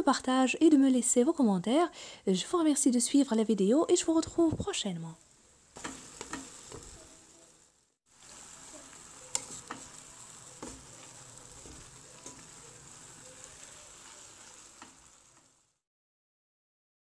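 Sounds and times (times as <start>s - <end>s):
food sizzling in frying pan: 2.6s - 15.8s
wooden spatula stirring: 5.8s - 7.1s, 8.2s - 15.6s.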